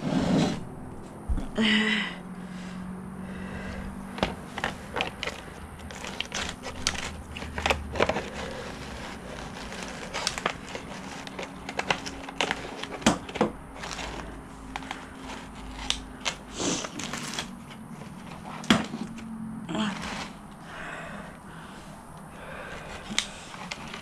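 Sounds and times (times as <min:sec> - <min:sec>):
shears snipping plastic: 0:04.2 - 0:20.6, 0:22.8 - 0:24.0.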